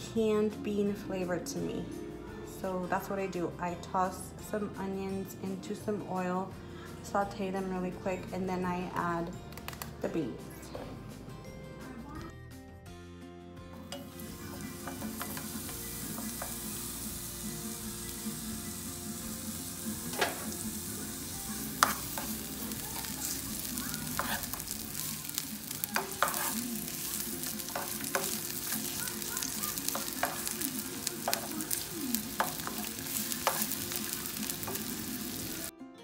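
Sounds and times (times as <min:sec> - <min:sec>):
onions sizzling in oil: 0:13.8 - 0:35.7
spatula scraping a pan: 0:21.6 - 0:35.4.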